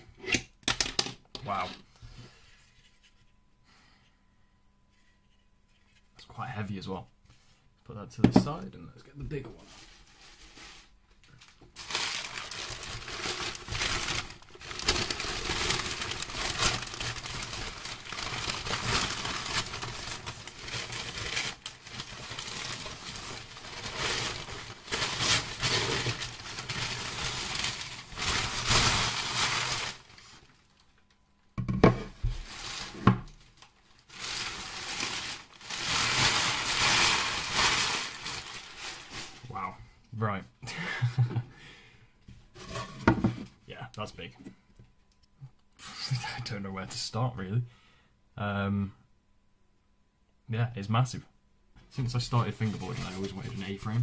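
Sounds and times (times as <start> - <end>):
packing paper crinkling: 9.6 - 31.1, 32.2 - 39.7, 52.0 - 54.0.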